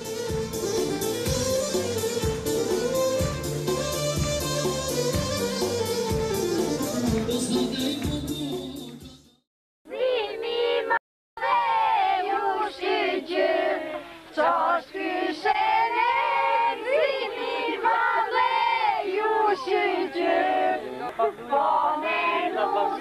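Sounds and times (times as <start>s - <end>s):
group singing unaccompanied: 9.9s - 23.0s.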